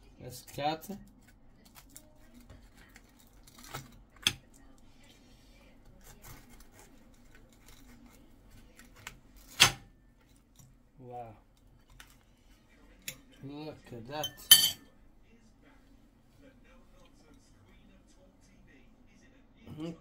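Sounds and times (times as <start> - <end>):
pie crust crackling: 0.1 - 13.4
fork clinking on plate: 14.2 - 14.8.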